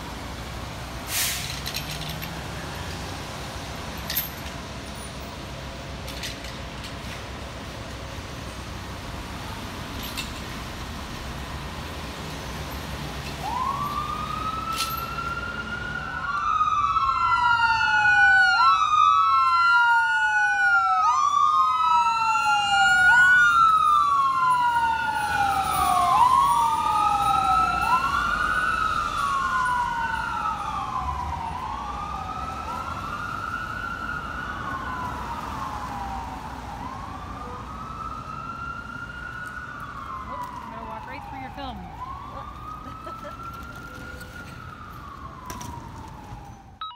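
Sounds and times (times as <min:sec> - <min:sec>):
traffic noise: 0:00.0 - 0:46.9
fire engine siren wailing: 0:12.9 - 0:46.9.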